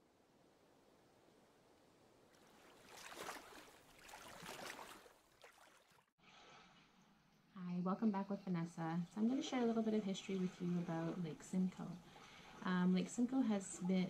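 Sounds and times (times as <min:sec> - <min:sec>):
faint waves washing in: 0:02.3 - 0:06.1.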